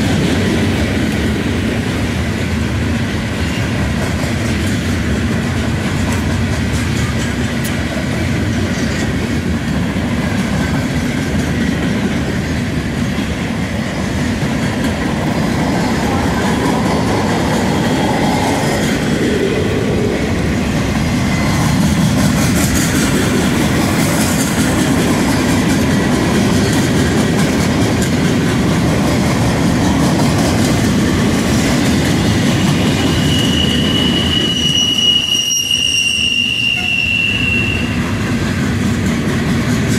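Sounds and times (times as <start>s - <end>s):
freight train rumble: 0.0s - 39.9s
steel wheels clattering on rails: 0.0s - 39.9s.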